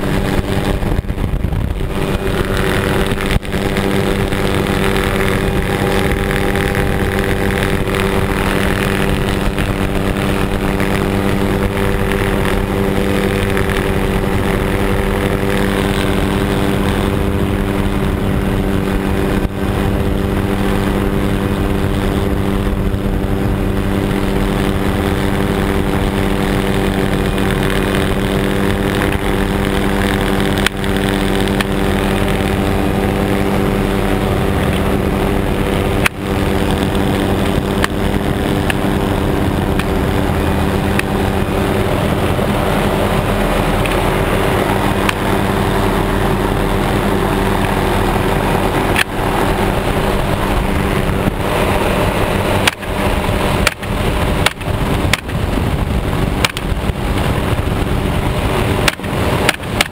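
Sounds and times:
helicopter engine and rotor: 0:00.0 - 0:59.9.

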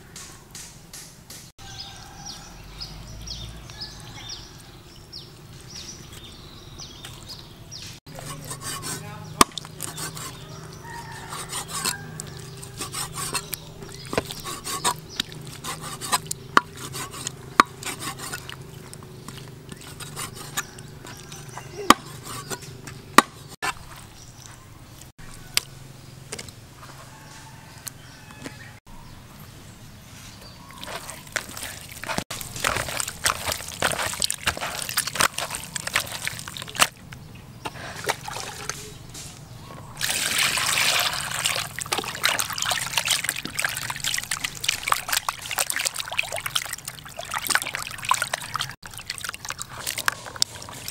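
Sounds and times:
wet handling and splashing: 0:08.1 - 0:24.2, 0:30.6 - 0:39.1, 0:40.0 - 0:50.9
cleaver chopping on wooden block: 0:08.3 - 0:10.4, 0:14.1 - 0:18.5, 0:19.8 - 0:23.6.

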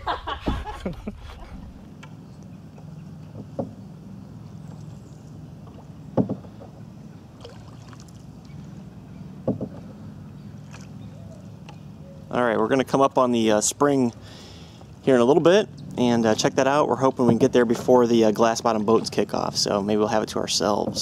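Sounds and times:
low steady hum: 0:00.0 - 0:21.0
canoe paddling on water: 0:00.1 - 0:21.0
paddle knocking canoe side: 0:03.2 - 0:03.8, 0:05.6 - 0:06.8, 0:09.4 - 0:10.0, 0:17.1 - 0:19.5, 0:20.5 - 0:21.0.

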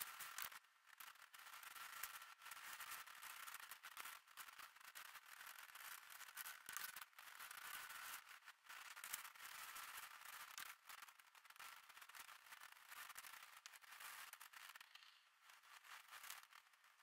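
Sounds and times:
faint hiss with crackling: 0:00.0 - 0:00.6.

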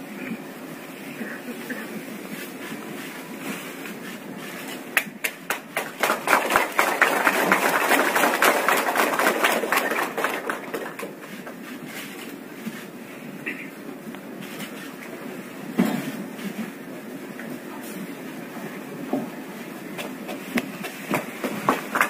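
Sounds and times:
audience applauding: 0:05.0 - 0:11.6, 0:21.2 - 0:22.0.

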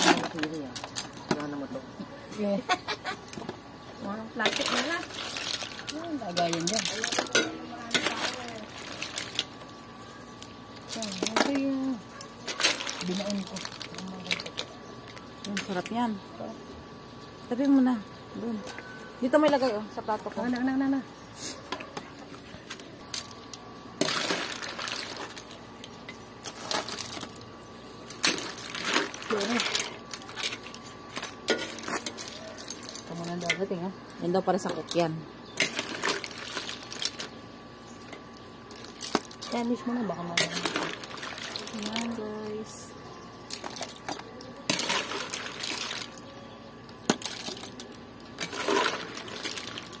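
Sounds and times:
broth sloshing: 0:40.4 - 0:42.1.

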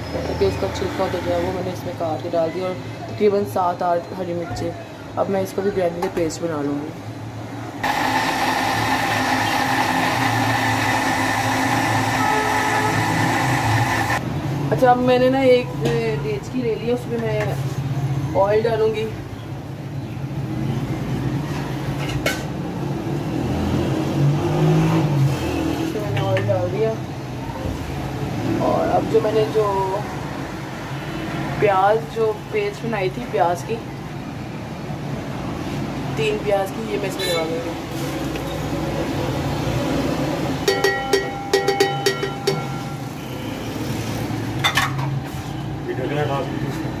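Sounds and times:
bowl knocking on metal pot: 0:40.7 - 0:42.8.

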